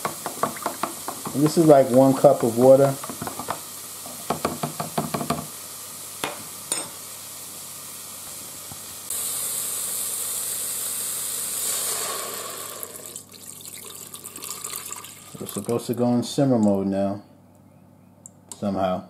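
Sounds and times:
mushrooms sizzling in pot: 0.0 - 16.0
broth being poured: 9.1 - 16.0.

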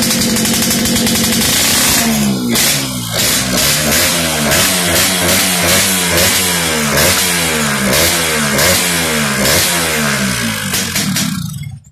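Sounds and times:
motorcycle engine revving: 0.0 - 11.9.

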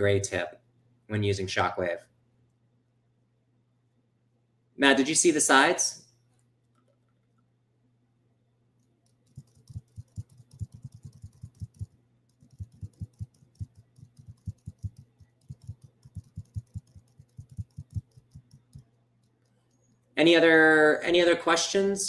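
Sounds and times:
typing on a computer keyboard: 9.1 - 19.6.

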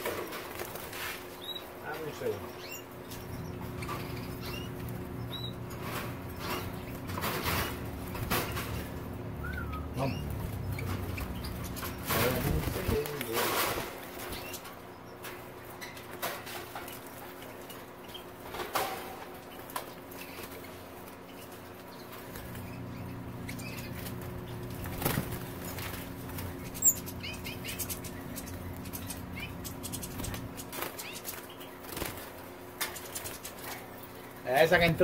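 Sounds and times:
birds flapping wings: 0.0 - 1.4, 3.9 - 9.1, 10.0 - 17.7, 18.3 - 34.0
faint low hum: 0.0 - 35.0
high bird chirps: 2.4 - 5.7, 8.5 - 12.1, 26.5 - 31.9.

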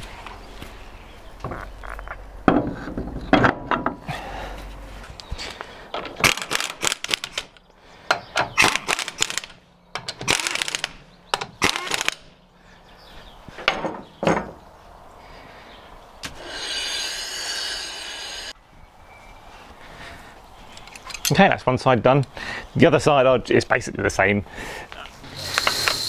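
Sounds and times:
power tool whirring: 16.3 - 18.6, 25.2 - 26.0
metal tools clicking and scraping: 20.7 - 21.4.

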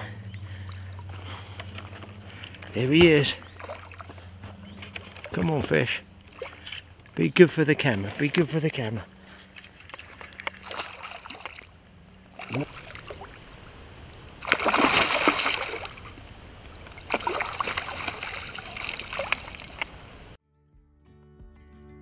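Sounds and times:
fish splashing in water: 3.4 - 5.4, 6.2 - 7.1, 7.8 - 20.4.

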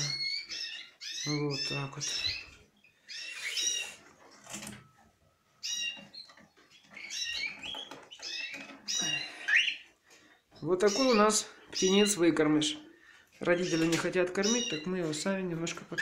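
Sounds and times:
cockatiels chirping: 0.0 - 4.0, 5.6 - 9.9, 10.6 - 12.2, 13.5 - 15.2.

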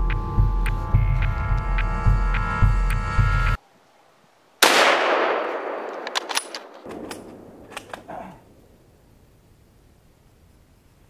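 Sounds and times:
rifle shot echoing: 4.6 - 8.9
sharp clicks: 5.8 - 8.1.

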